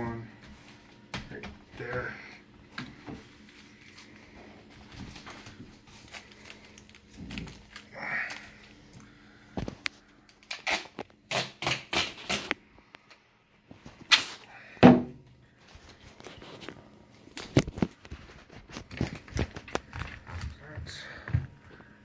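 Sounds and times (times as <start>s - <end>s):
duct tape ripping: 10.3s - 12.6s, 14.0s - 14.5s.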